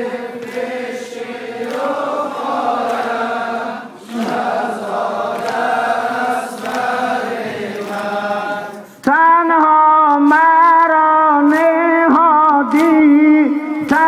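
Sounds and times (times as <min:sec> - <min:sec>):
men chanting in unison: 0:00.0 - 0:09.1.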